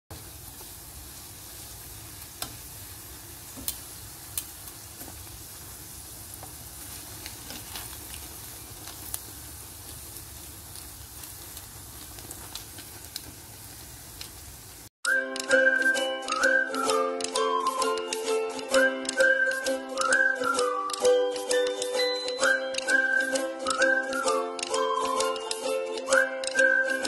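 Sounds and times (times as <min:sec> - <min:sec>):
deep-frying in hot oil sizzle: 0:00.1 - 0:14.9
oil popping: 0:06.4 - 0:14.4.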